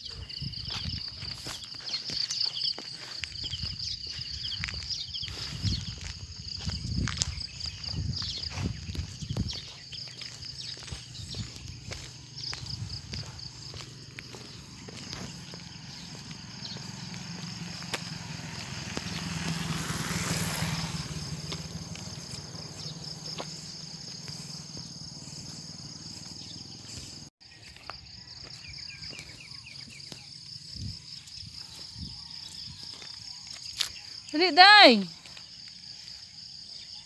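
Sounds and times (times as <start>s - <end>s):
insects droning: 0.0s - 37.0s
vehicle passing by: 10.2s - 27.3s.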